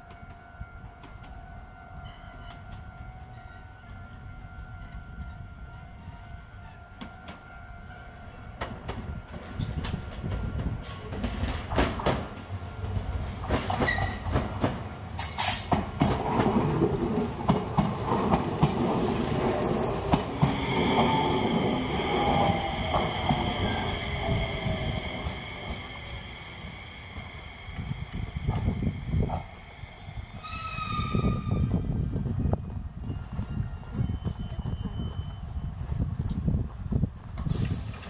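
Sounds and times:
train low rumble: 0.0s - 38.0s
train wheels clicking over rail joints: 13.4s - 25.9s
steady high tone: 19.2s - 30.4s.

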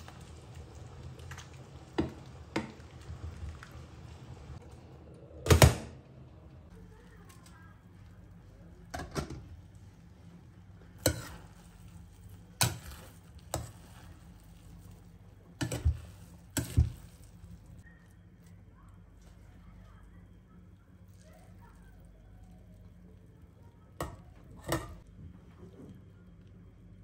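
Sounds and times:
utensil stirring rice in pot: 7.2s - 19.5s.

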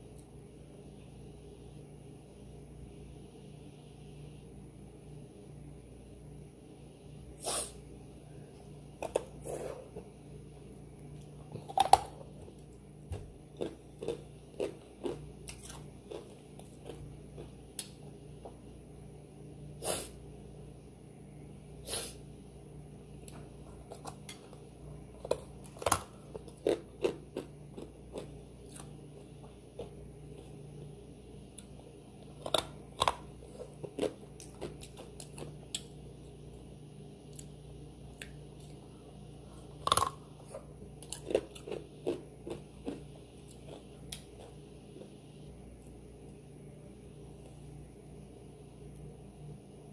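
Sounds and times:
person chewing crunchy food: 11.3s - 18.5s, 23.8s - 30.8s, 31.5s - 36.0s, 39.5s - 45.2s.

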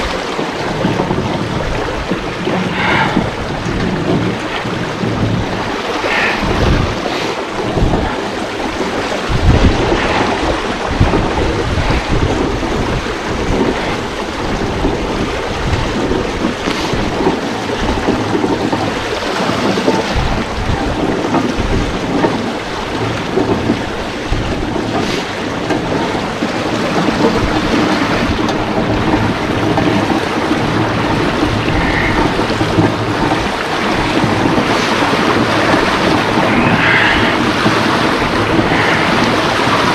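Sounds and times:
water rushing through water wheel: 0.0s - 39.9s
low thumps: 0.8s - 7.0s, 19.7s - 26.0s.

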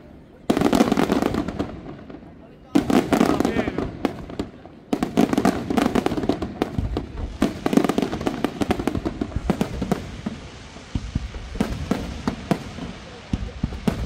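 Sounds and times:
firework bangs and crackles: 0.0s - 14.0s.

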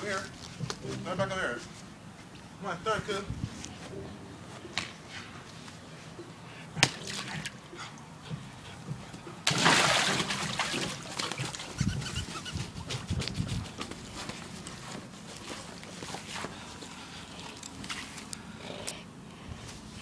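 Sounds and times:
water splashing: 6.8s - 7.7s, 9.4s - 12.5s.

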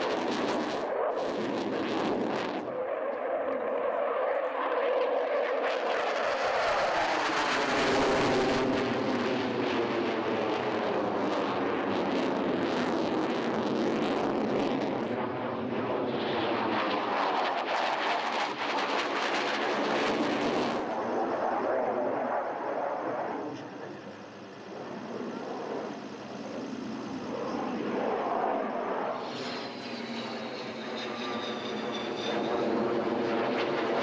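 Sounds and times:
fighter jet roar: 0.0s - 34.0s.

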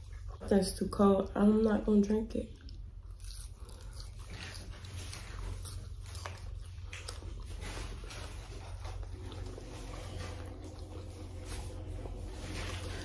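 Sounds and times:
steady low hum: 0.0s - 13.0s
person chewing food: 2.5s - 13.0s
small clicks and crunches: 2.6s - 13.0s.

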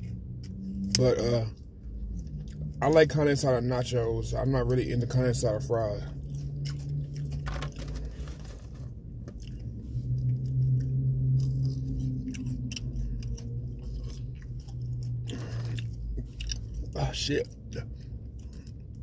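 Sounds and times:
person chewing crunchy food: 0.0s - 3.1s, 5.0s - 19.0s
steady low hum: 0.0s - 19.0s.

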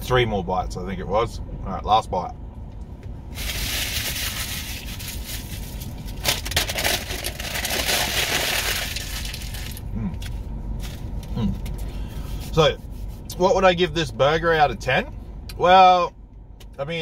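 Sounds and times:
paper wrapper crumpling: 3.4s - 9.8s.

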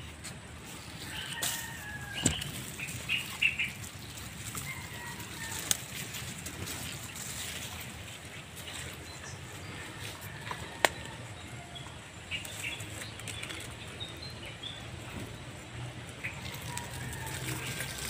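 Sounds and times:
rustling in leaf litter: 0.0s - 10.9s, 16.0s - 18.0s.

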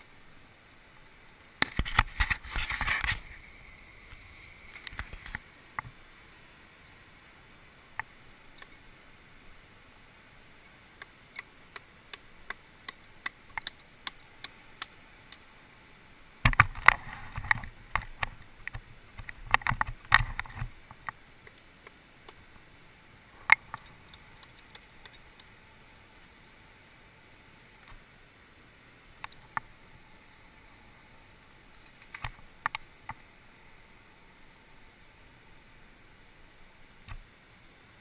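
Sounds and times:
hard objects clicking on rock: 11.0s - 15.4s.

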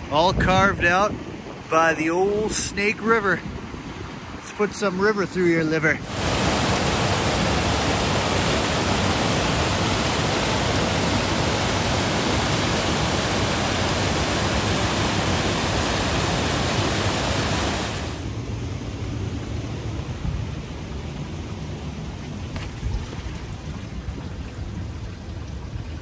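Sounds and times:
water rushing over boulders: 1.6s - 26.0s.

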